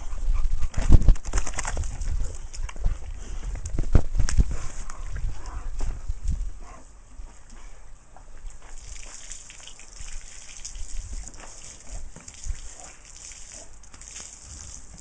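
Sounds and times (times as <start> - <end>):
hose water splashing on concrete: 8.5 - 15.0.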